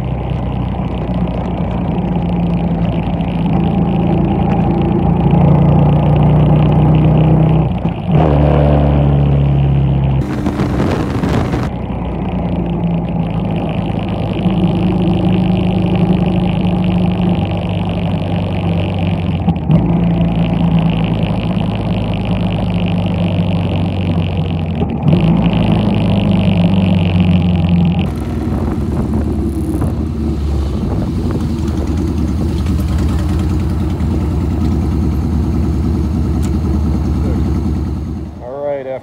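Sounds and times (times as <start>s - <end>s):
rush of noise: 10.2s - 11.9s, 28.0s - 35.4s
motorcycle engine running: 10.2s - 24.9s, 25.5s - 39.0s.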